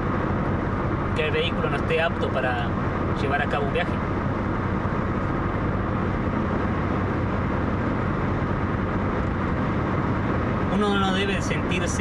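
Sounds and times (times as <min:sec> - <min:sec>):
car interior low rumble: 0:00.0 - 0:12.0.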